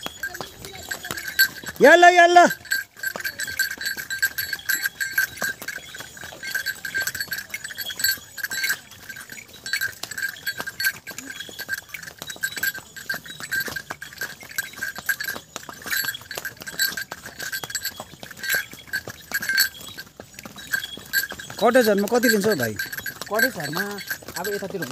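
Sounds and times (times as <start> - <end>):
harness bell jingling: 0.0 - 24.9
hooves clicking on stony trail: 0.0 - 24.9.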